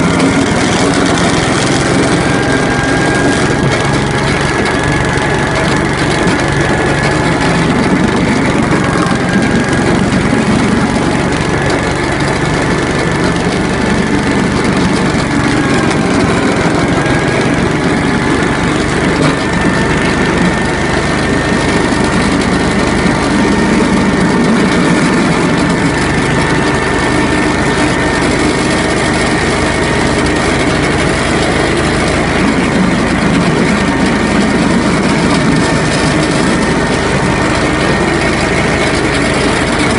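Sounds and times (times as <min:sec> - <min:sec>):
petrol engine running: 0:00.0 - 0:39.9.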